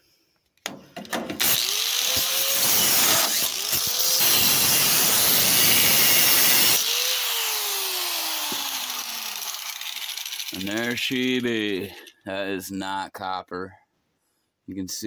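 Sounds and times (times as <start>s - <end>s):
angle grinder cutting wire: 1.3s - 12.1s
grinder motor winding down: 1.4s - 11.1s.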